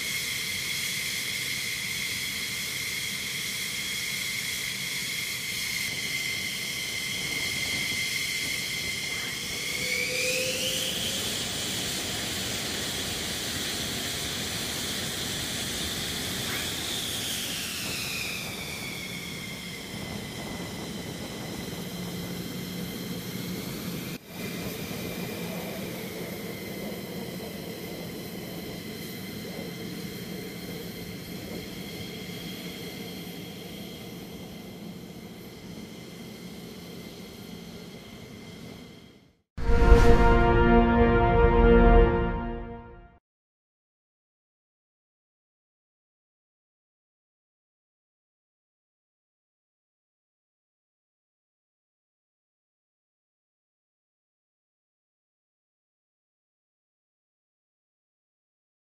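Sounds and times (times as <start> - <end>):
jet engine roar: 0.0 - 42.8
jet engines whining: 0.0 - 42.8.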